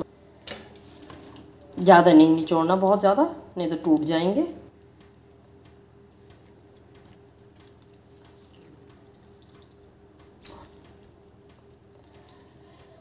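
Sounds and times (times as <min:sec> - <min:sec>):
steady low hum: 0:00.0 - 0:13.0
water dripping into steel bowl: 0:06.5 - 0:12.9.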